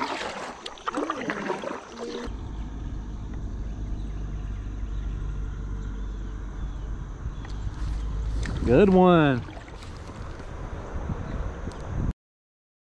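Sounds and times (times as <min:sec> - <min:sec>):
paddle splashing in water: 0:00.0 - 0:02.3, 0:07.8 - 0:10.6
steady low rumble: 0:02.3 - 0:12.1.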